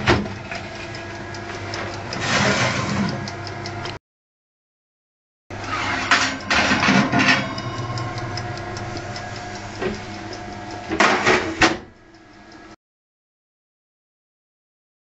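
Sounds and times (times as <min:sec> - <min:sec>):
steady mechanical hum: 0:00.0 - 0:04.0, 0:05.5 - 0:12.8
oven rack clanking and rattling: 0:01.7 - 0:03.3, 0:05.6 - 0:11.9.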